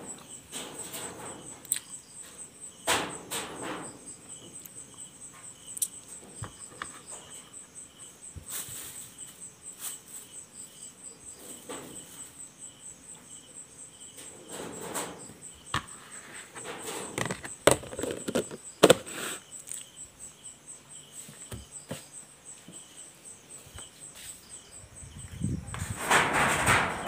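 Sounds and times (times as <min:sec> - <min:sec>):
cricket chirping: 0:00.0 - 0:27.0
handling clicks and knocks: 0:17.1 - 0:19.1.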